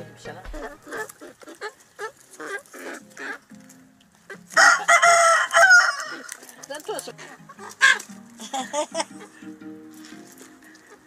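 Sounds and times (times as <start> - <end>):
chickens clucking: 0.0 - 11.0
rooster crowing: 4.6 - 6.3.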